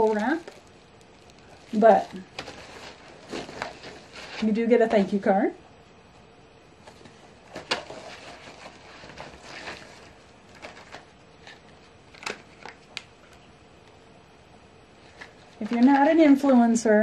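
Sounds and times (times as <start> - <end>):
plastic packaging crinkling: 0.0 - 5.0, 6.8 - 13.4.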